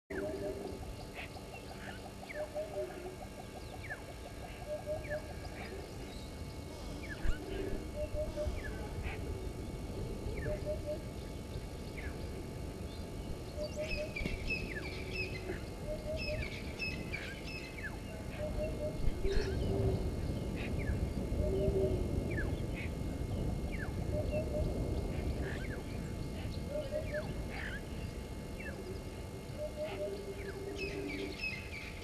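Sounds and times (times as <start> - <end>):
low background rumble: 0.1 - 32.0
low three-note bird call: 10.4 - 11.1.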